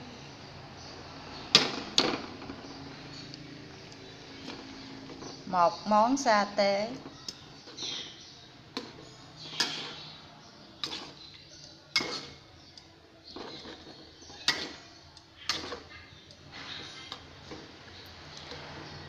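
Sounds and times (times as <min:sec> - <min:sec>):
spoon scraping metal pan: 0:06.9 - 0:19.0.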